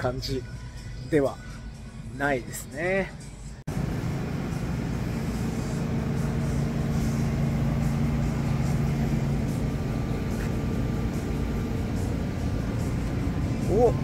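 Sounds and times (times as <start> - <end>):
refrigerator and ventilation hum: 3.7 - 14.0.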